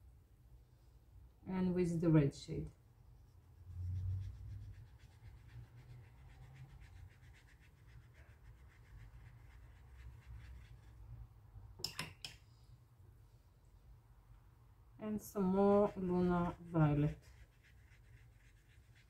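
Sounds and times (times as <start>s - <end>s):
brush strokes on paper: 3.2s - 11.1s, 15.4s - 19.0s.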